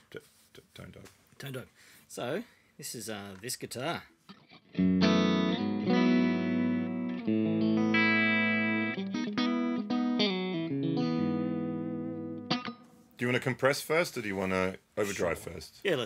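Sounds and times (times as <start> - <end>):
clean electric guitar strummed chords: 4.3 - 12.9.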